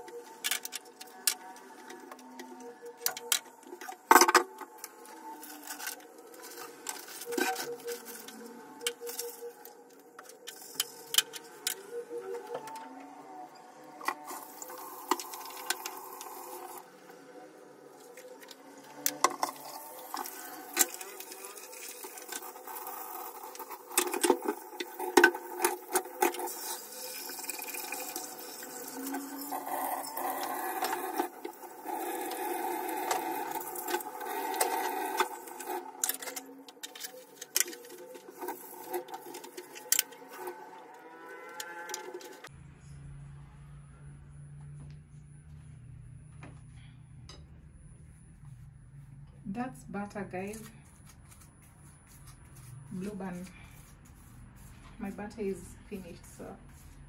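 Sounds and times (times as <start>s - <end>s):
tap water running: 14.3s - 16.8s, 19.4s - 35.8s.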